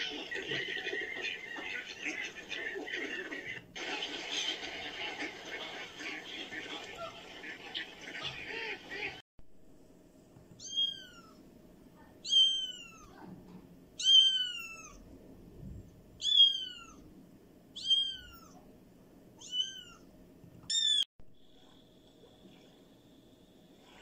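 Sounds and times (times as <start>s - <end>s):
kitten meowing: 10.6s - 11.4s, 12.2s - 13.2s, 14.0s - 15.0s, 17.8s - 18.6s, 19.4s - 20.0s.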